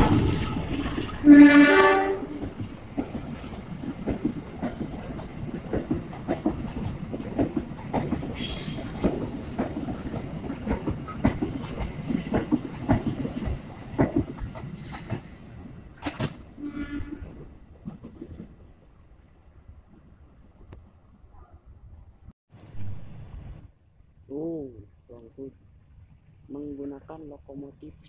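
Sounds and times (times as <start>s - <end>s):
train wheels clattering over joints: 2.3s - 16.5s.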